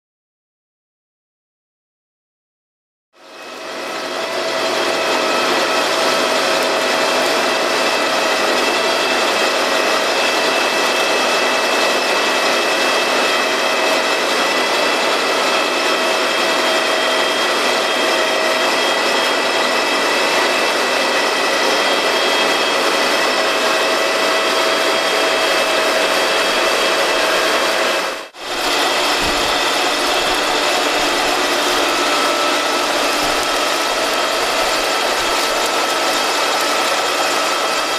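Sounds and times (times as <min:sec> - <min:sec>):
drive whine: 0:23.4 - 0:37.9
potato lifter chains clattering: 0:28.4 - 0:37.9.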